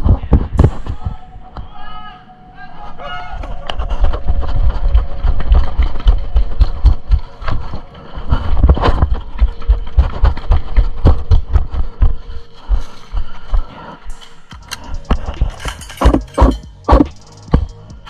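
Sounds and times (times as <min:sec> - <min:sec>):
running footfalls: 0:03.8 - 0:13.7
gear rattling: 0:14.1 - 0:17.8.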